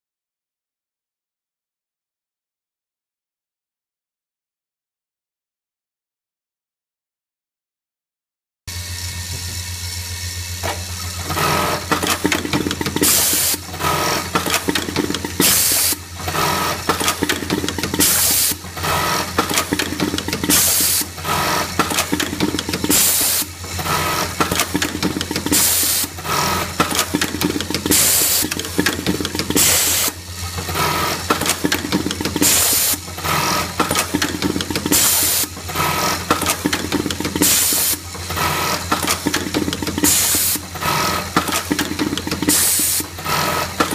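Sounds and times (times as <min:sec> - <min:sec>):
steady machine hum: 0:08.7 - 0:43.9
rapid machine stitching: 0:08.8 - 0:43.9.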